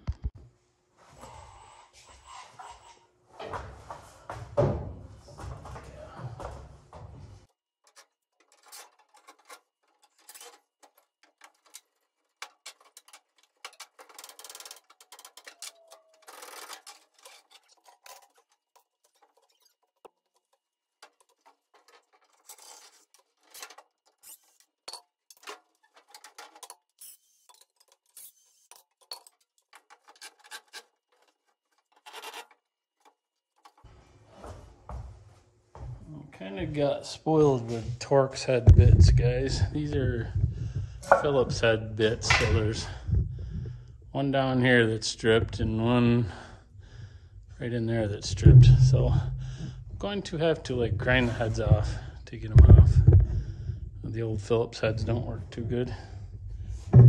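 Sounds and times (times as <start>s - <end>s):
small knocks: 7.8s - 26.9s, 48.4s - 49.8s
scraping and rubbing in metal toolbox: 7.8s - 32.6s.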